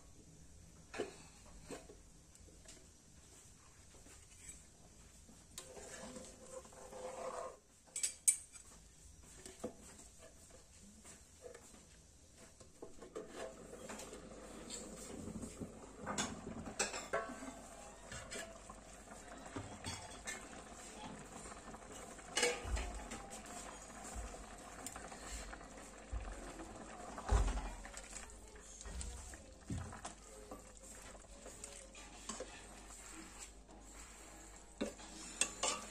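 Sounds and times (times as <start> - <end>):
curry simmering in pan: 5.5 - 7.6, 12.6 - 35.9
metal ladle clinking and scraping pan: 22.2 - 22.9, 34.8 - 35.9.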